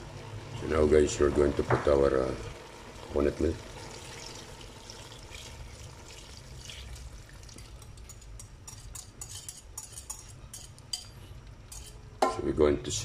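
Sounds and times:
liquid pouring into a pot: 0.4s - 9.6s
liquid drips: 3.9s - 8.3s.

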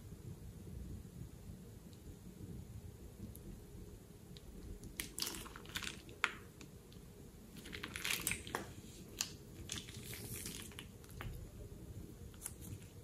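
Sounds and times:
plastic bag crinkling: 7.6s - 11.4s.

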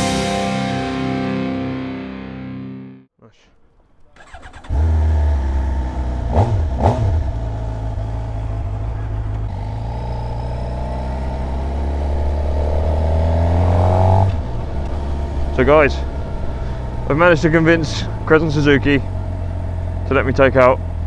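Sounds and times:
motorcycle engine revving: 3.6s - 21.0s.

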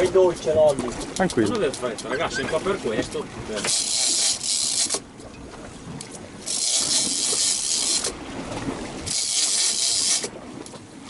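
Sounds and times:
fishing line hissing: 3.6s - 5.0s, 6.5s - 8.2s, 9.1s - 10.3s
fishing reel cranking: 3.6s - 5.0s, 6.4s - 8.2s, 9.1s - 10.3s.

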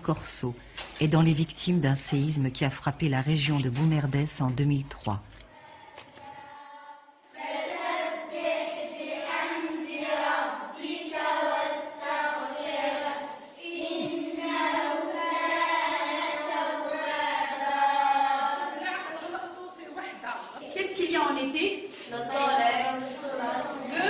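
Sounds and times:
children chanting in unison: 5.5s - 19.3s, 22.1s - 24.0s.

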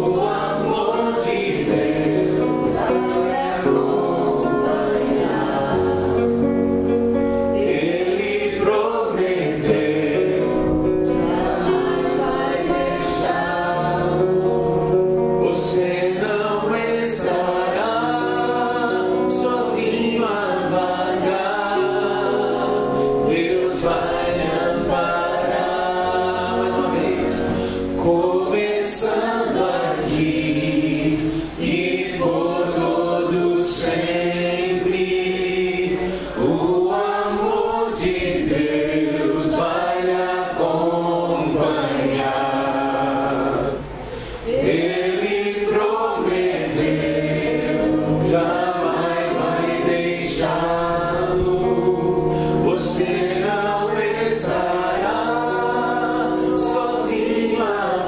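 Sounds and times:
classical guitar: 0.0s - 58.0s
man singing into microphone: 15.4s - 38.4s, 39.3s - 43.9s.

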